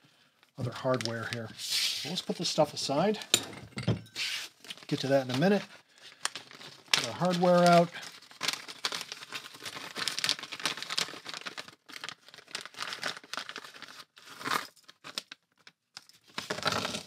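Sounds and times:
plastic bag crinkling: 0:04.6 - 0:17.0.

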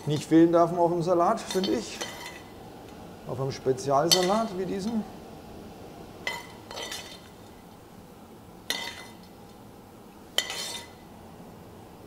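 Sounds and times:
utensils clinking against salad bowl: 0:04.1 - 0:05.0, 0:06.2 - 0:07.3, 0:10.4 - 0:11.0.

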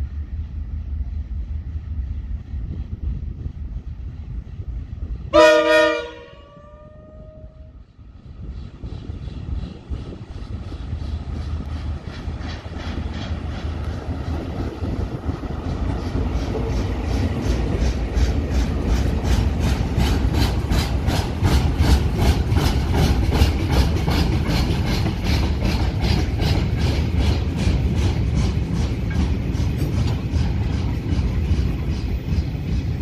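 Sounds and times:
train wheels clicking: 0:07.8 - 0:33.0.

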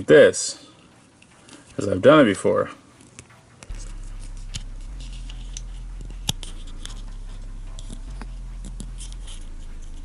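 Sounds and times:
fingers rubbing toy: 0:03.7 - 0:10.0
low bass tone: 0:03.7 - 0:10.0.

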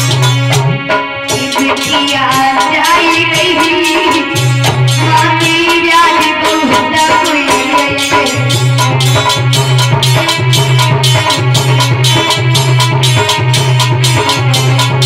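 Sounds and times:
hand drum: 0:00.0 - 0:15.0
woman singing folk song: 0:01.7 - 0:04.3, 0:05.0 - 0:08.5.

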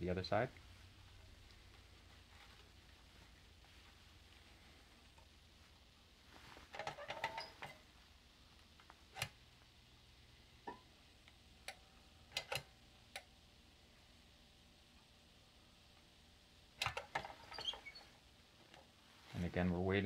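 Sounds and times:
mask fabric rustling: 0:00.0 - 0:10.3, 0:17.0 - 0:20.0.

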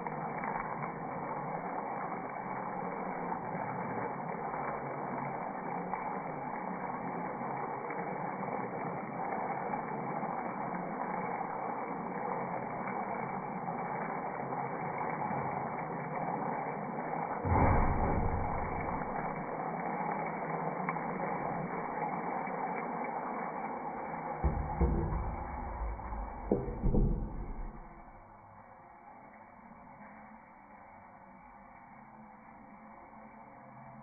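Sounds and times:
food simmering hiss: 0:00.0 - 0:27.4, 0:28.4 - 0:34.0
pan lid bump: 0:24.5 - 0:27.9.

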